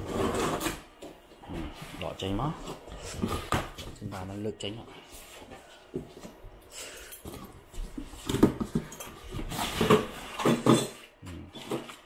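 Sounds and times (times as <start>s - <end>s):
foam blocks scraping and squeaking: 0.0s - 1.0s.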